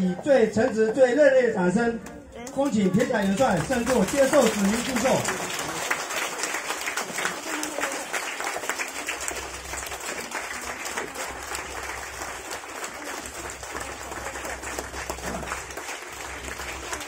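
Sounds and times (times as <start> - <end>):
crowd applauding: 2.4 - 17.0.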